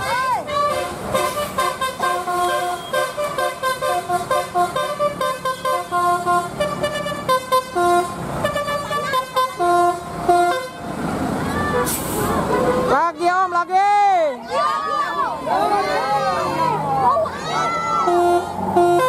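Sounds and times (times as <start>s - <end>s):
bus air horns playing a tune: 0.0s - 10.9s, 11.7s - 13.0s, 17.9s - 19.0s.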